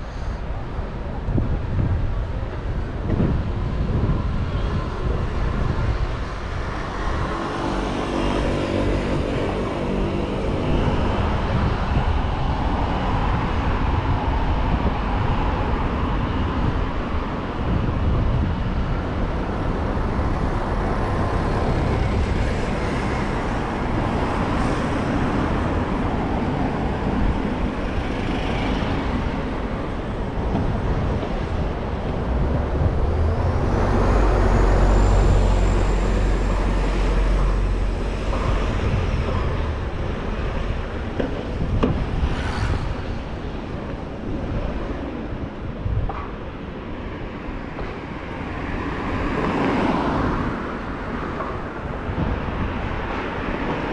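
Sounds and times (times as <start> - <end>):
cars passing: 0.0 - 53.9
vehicle engine humming: 19.3 - 44.9.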